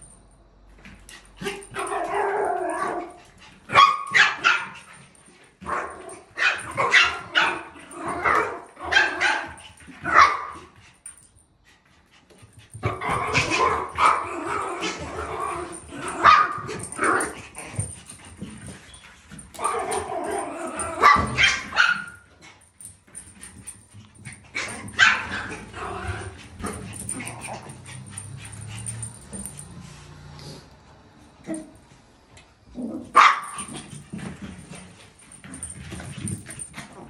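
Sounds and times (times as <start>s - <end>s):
small dogs barking: 1.7s - 4.9s, 5.7s - 10.6s, 12.9s - 17.4s, 19.6s - 22.2s, 24.5s - 28.6s, 33.1s - 33.8s.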